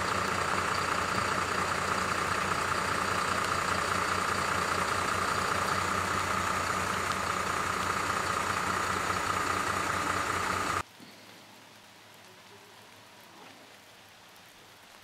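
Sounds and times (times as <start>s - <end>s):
diesel engine idling: 0.0s - 10.8s
faint hiss: 0.0s - 15.0s.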